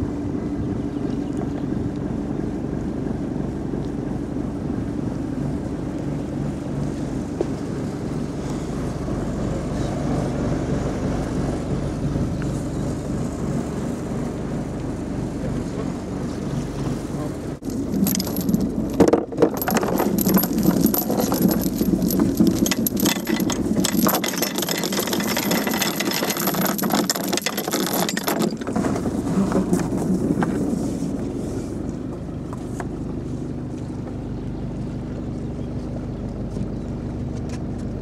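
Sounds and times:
low hum: 0.0 - 38.0
rattling and knocking: 17.6 - 30.6.

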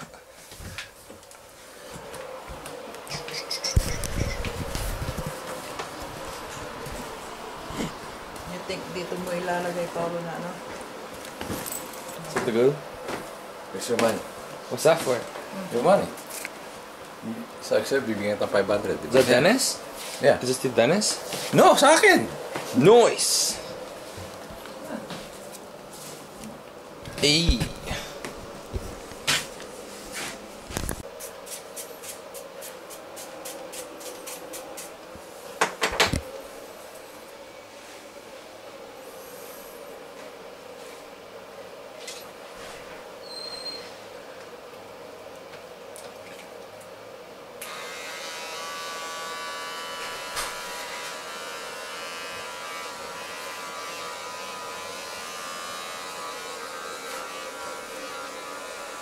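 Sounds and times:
scissors snipping hair: 31.5 - 35.0
electric hair clippers buzzing: 47.6 - 59.0.

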